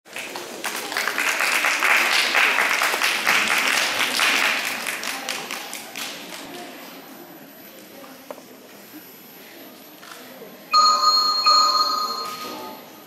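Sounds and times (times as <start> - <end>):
audience applauding: 0.1 - 6.2.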